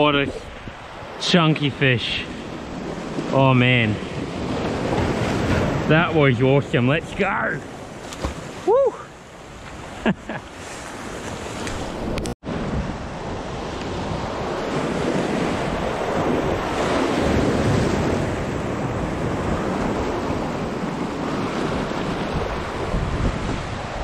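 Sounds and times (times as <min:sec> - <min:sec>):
sea waves washing over rocks: 0:00.1 - 0:24.0
wind buffeting microphone: 0:10.9 - 0:24.0.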